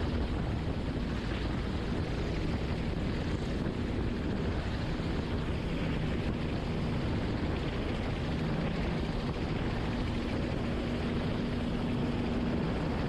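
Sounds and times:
helicopter engine and rotor: 0.0s - 13.0s.

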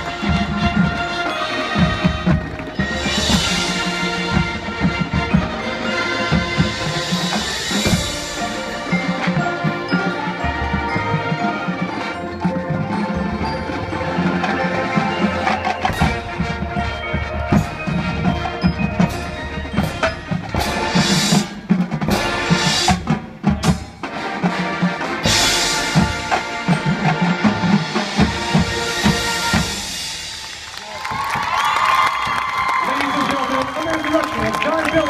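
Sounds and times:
brass and woodwind chords: 0.0s - 19.9s, 24.0s - 30.2s
mallet percussion and bells: 0.0s - 30.6s
pulsing drum beat: 0.0s - 35.0s.

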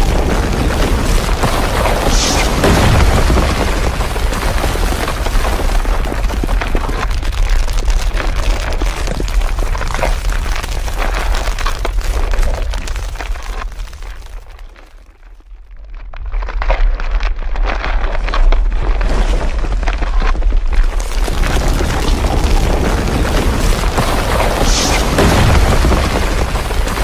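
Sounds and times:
earthquake low rumble: 0.0s - 27.0s.

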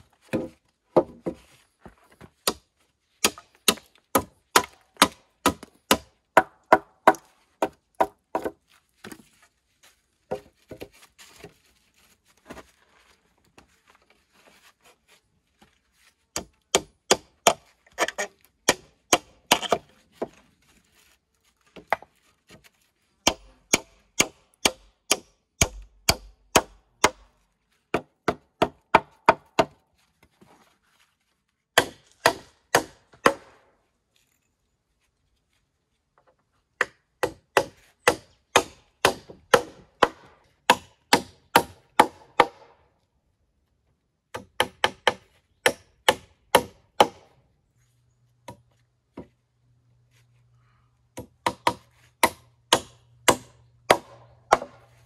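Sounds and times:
sharp strikes on wood: 51.2s - 54.8s.

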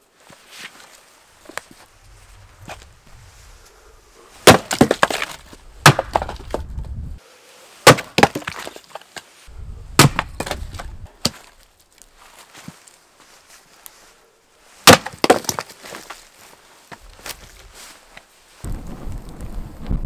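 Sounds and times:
axe chopping firewood: 4.4s - 6.7s, 7.8s - 9.2s, 9.9s - 11.6s, 14.8s - 16.1s
split wood clattering down: 4.4s - 6.7s, 14.9s - 16.2s.

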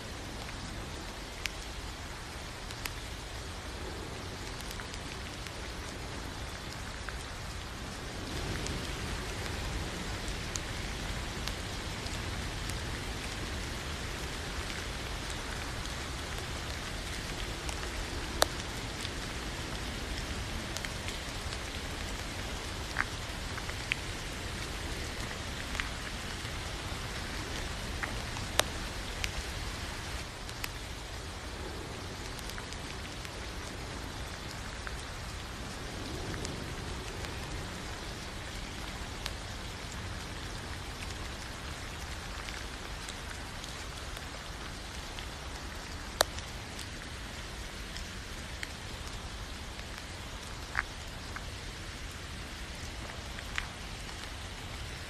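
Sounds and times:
steady rain hiss: 0.0s - 55.0s
raindrop ticks: 0.2s - 55.0s.

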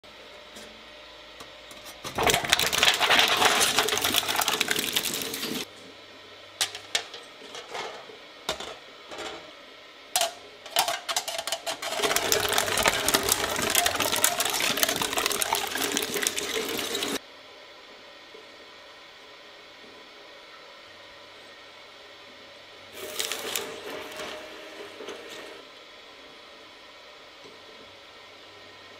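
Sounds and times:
shredder running quietly: 0.1s - 9.6s, 10.2s - 17.2s, 19.8s - 28.9s
shredder blades crunching: 2.0s - 5.7s, 10.2s - 17.2s, 23.0s - 24.4s.

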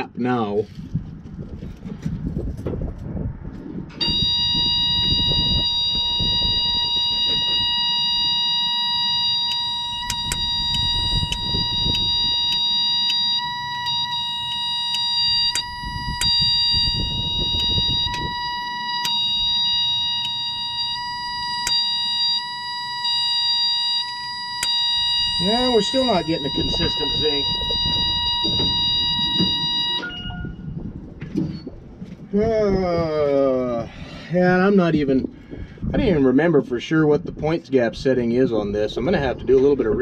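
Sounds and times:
high-pitched warning buzzer: 4.0s - 30.6s
distributor points clicking: 5.6s - 30.1s.

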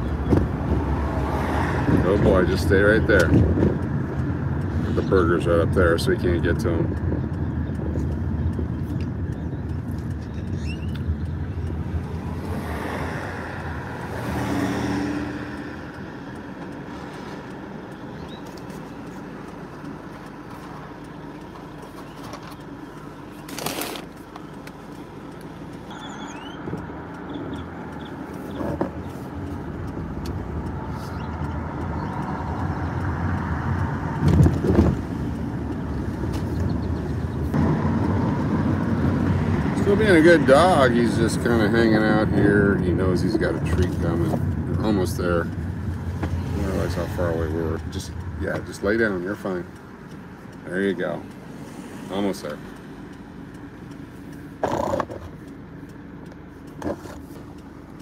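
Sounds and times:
car engine and road rumble: 0.0s - 58.0s.

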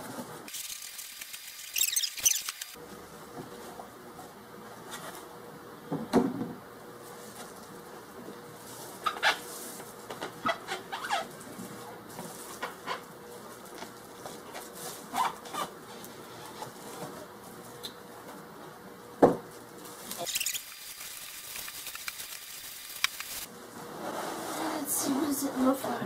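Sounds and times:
pulp inserts scraping and squeaking: 1.6s - 2.6s
plastic wrap crinkling: 8.6s - 17.0s, 19.5s - 23.5s.

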